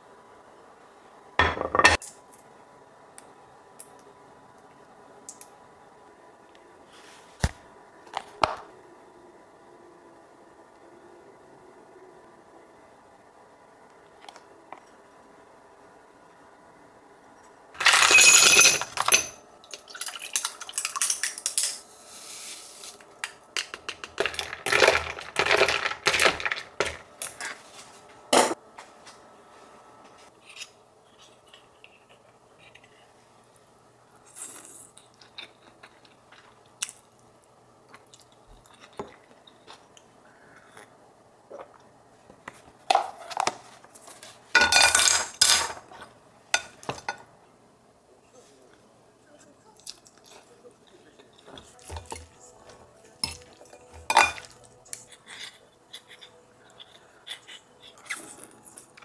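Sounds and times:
dishes and cutlery clattering: 53.2 - 54.7.

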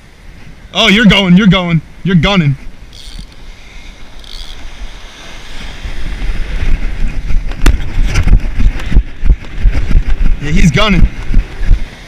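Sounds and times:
surf: 0.0 - 12.0
wind on microphone: 2.6 - 12.0.

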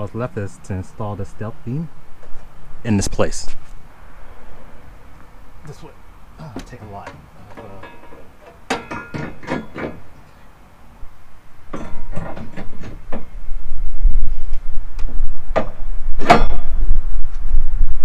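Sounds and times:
metal clicks and knocks: 6.6 - 10.0
wind rumble on microphone: 11.0 - 18.0.

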